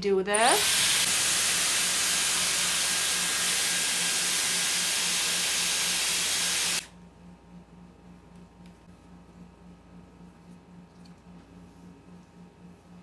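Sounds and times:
hair styler blowing air: 0:00.4 - 0:06.9.

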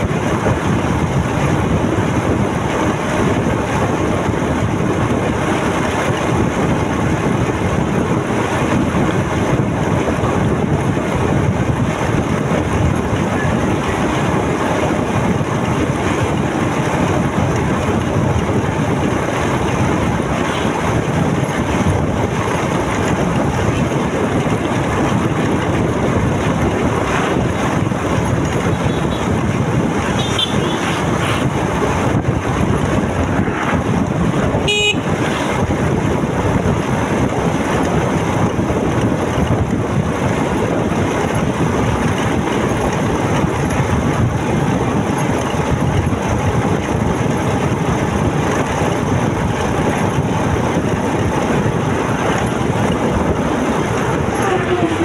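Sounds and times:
wind and motorcycle road noise: 0:00.0 - 0:55.0
vehicle horn toot: 0:28.7 - 0:29.3, 0:30.2 - 0:30.9, 0:34.6 - 0:35.2.

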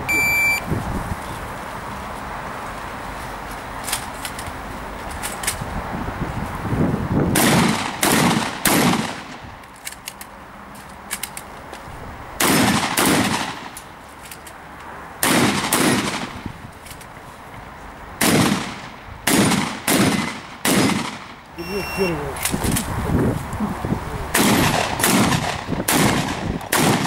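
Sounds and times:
shotgun shots: 0:07.4 - 0:09.3, 0:12.4 - 0:13.7, 0:15.2 - 0:16.3, 0:18.2 - 0:21.4, 0:24.4 - 0:27.0.

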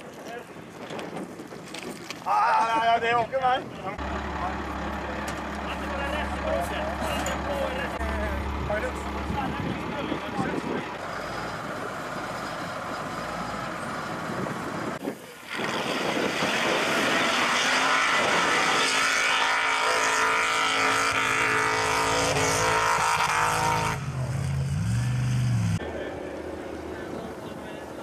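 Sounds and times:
engine running at high revs: 0:13.3 - 0:27.6.

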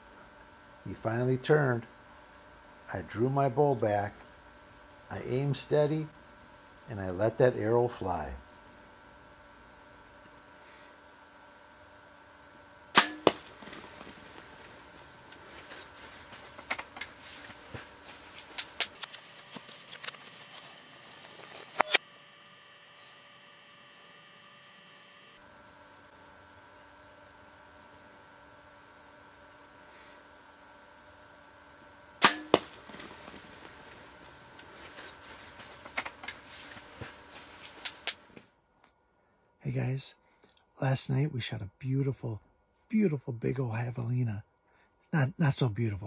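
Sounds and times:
arrow striking: 0:13.0 - 0:14.0, 0:32.2 - 0:33.4
deer hooves on dry dirt: 0:13.2 - 0:21.7, 0:32.5 - 0:38.4
faint scattered clicks: 0:32.9 - 0:39.0.

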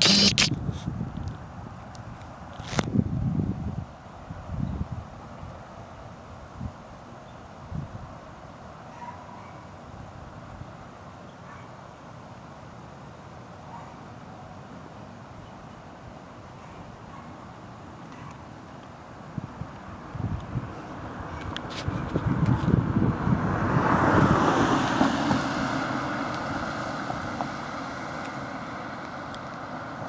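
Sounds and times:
faint steady hiss: 0:00.0 - 0:22.5
faint insect chirps: 0:00.0 - 0:22.8.

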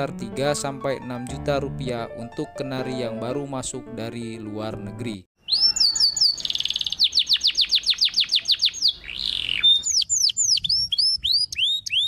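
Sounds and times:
canary singing: 0:05.4 - 0:12.0.

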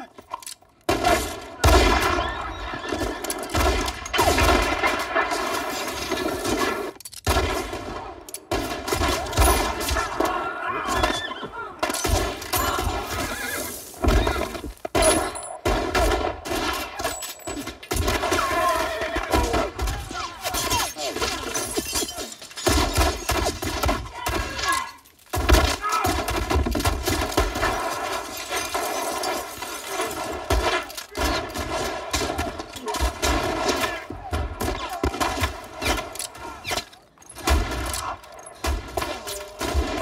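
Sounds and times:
gunshots: 0:00.9 - 0:40.0
horses whinnying: 0:09.9 - 0:11.9, 0:12.5 - 0:14.7.

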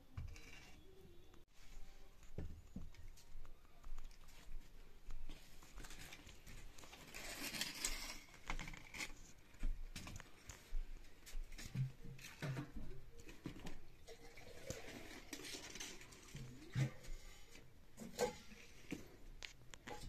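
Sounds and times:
wood scraping and rustling: 0:05.6 - 0:09.4.

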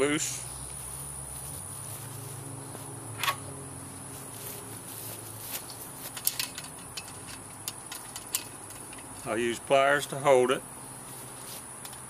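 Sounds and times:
high insect drone: 0:00.0 - 0:12.0
frame parts clicking: 0:05.8 - 0:09.3.

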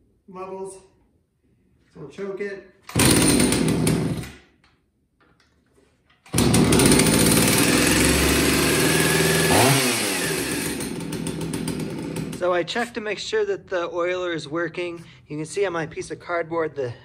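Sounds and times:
chainsaw engine running: 0:02.9 - 0:04.2, 0:06.3 - 0:12.7.

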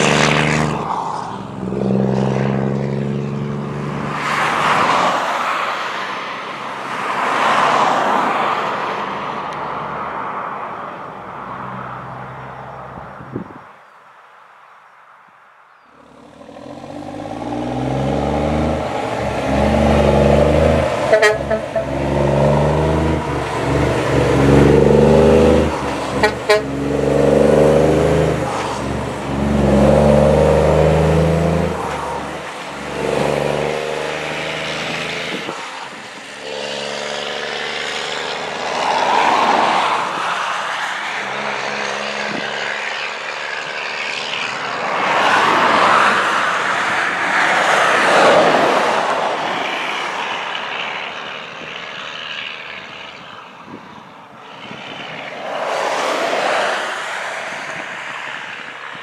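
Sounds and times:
diesel truck engine accelerating: 0:16.0 - 0:39.2.

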